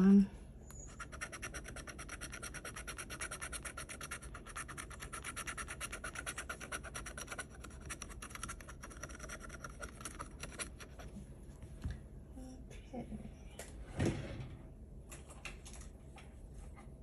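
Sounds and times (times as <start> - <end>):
scratching lottery ticket: 0.8 - 11.1.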